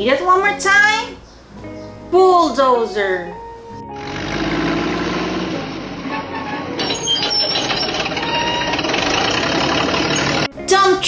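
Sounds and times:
diesel excavator working: 3.8 - 10.6.

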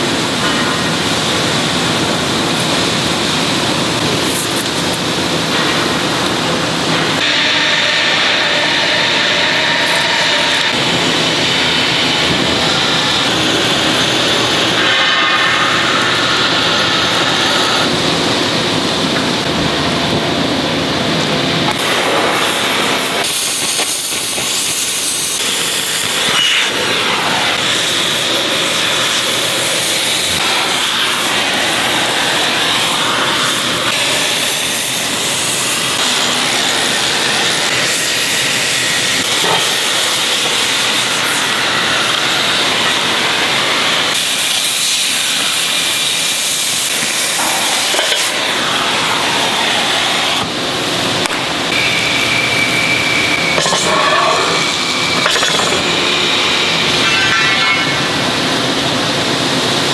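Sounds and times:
cutting torch hissing: 21.7 - 50.6, 51.7 - 58.2.

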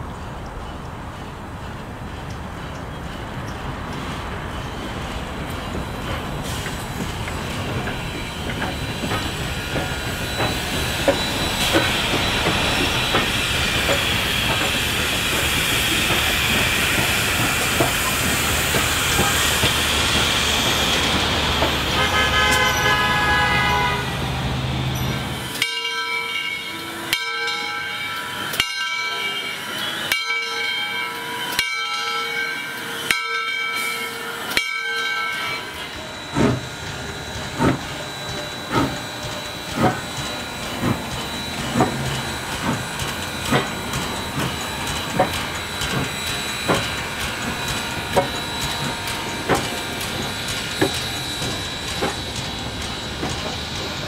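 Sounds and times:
train cars rolling by: 0.0 - 54.0
steam locomotive exhaust: 0.8 - 54.0
steam hissing: 3.8 - 31.6, 32.2 - 54.0
ringing metallic strikes: 25.0 - 54.0.

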